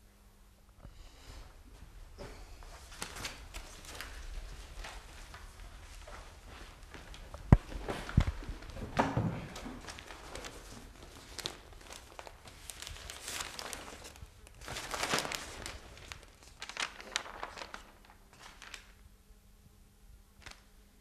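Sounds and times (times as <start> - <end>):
newspaper pages rustling: 2.6 - 19.0.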